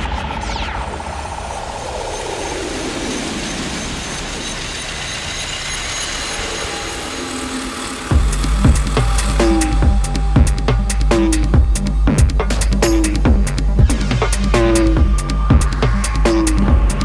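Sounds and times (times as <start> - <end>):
rumbling noisy sound effect: 0.0 - 17.0
heavy bass and drum beat: 8.1 - 17.0.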